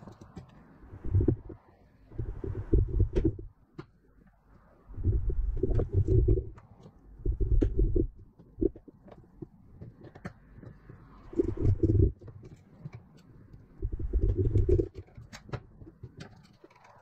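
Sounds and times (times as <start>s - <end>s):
low pulsing rumble: 0.9s - 3.5s, 4.9s - 6.6s, 7.2s - 8.8s, 11.3s - 12.2s, 13.8s - 14.9s.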